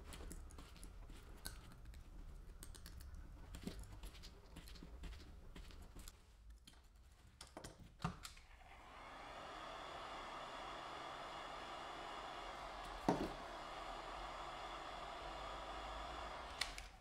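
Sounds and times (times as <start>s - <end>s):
steady motor hum: 8.7s - 17.0s.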